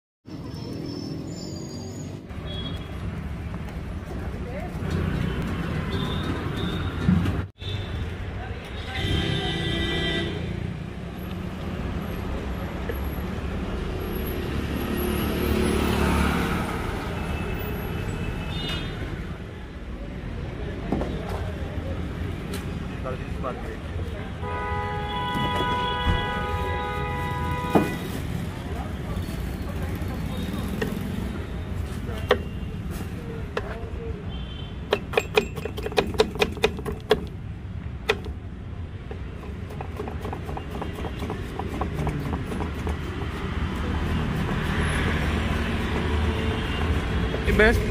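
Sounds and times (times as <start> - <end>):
road traffic rumble: 0.2 - 47.9
knife chopping on wooden board: 34.9 - 37.4, 39.2 - 47.4.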